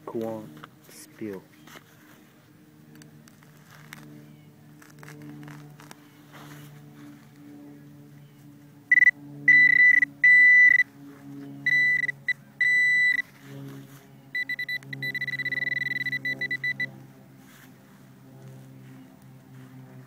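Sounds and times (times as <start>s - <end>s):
metal detector beeping: 8.9s - 10.9s, 11.6s - 13.3s, 14.3s - 16.9s.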